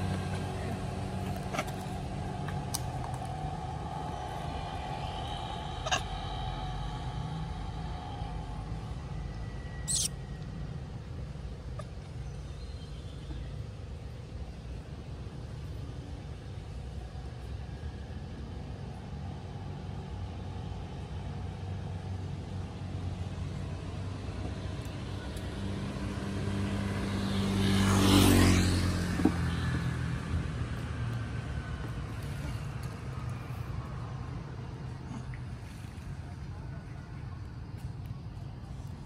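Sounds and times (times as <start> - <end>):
low rumble: 0.0 - 11.8
vehicle passing on road: 0.0 - 36.8.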